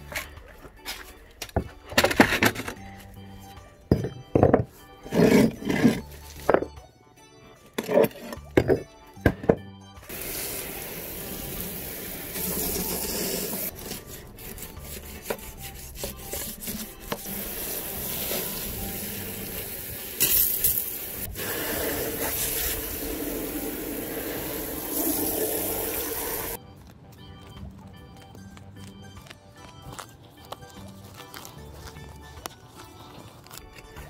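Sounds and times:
hose spraying water on tiles: 0:10.1 - 0:13.7, 0:17.2 - 0:26.6.

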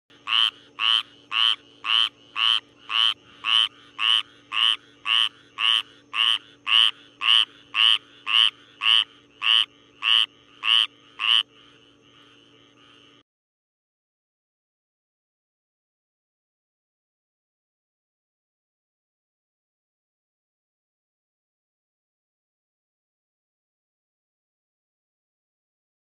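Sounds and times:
frog croaking: 0:00.1 - 0:13.2.

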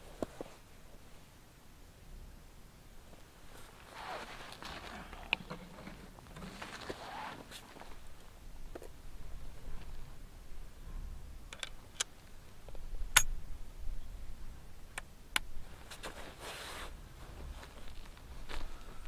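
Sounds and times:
brief rustle: 0:03.5 - 0:08.0.

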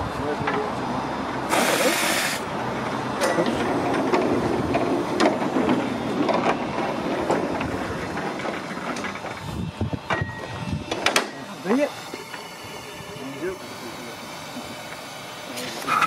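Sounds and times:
short hiss: 0:01.5 - 0:02.4.

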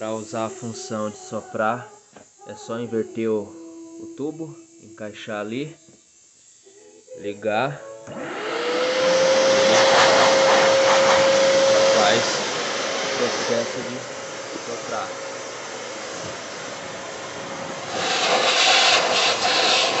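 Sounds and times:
vacuum motor whining: 0:07.2 - 0:20.0
rush of air: 0:08.3 - 0:20.0.

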